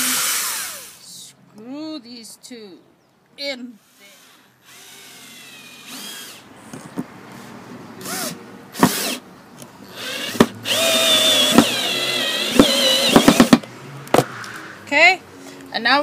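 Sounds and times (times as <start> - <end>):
drill motor whining: 0.0 - 1.0, 3.8 - 6.4, 9.9 - 13.6.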